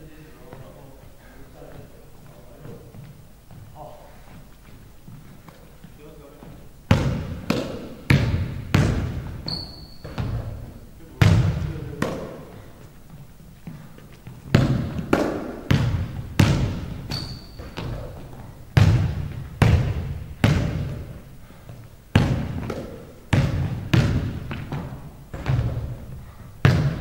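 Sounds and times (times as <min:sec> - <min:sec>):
sneakers squeaking on floor: 0:00.4 - 0:27.0
basketball bouncing on wooden floor: 0:06.9 - 0:12.4, 0:13.7 - 0:27.0.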